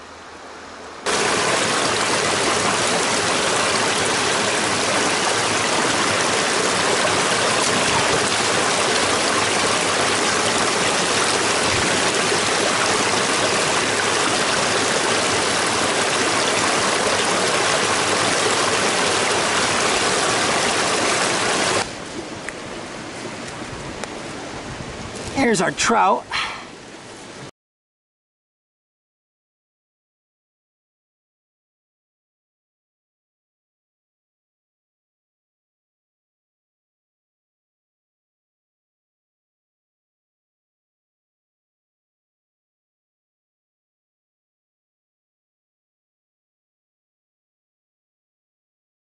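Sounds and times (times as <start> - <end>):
brook rushing over a cascade: 1.1 - 22.0.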